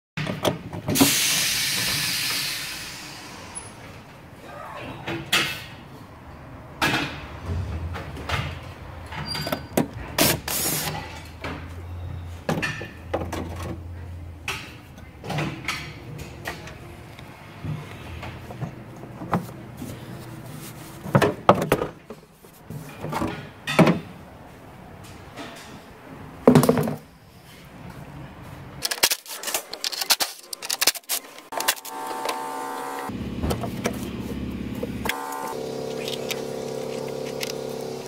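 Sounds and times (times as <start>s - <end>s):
burst of hiss: 1.0s - 3.8s
plastic parts knocking and rattling: 21.0s - 24.0s, 28.8s - 31.9s.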